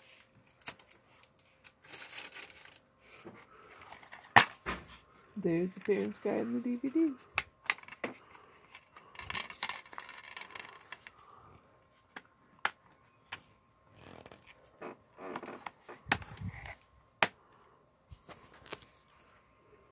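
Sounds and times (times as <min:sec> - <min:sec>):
plastic case rustling and scraping: 0:00.0 - 0:05.1, 0:07.8 - 0:11.4, 0:13.3 - 0:16.8.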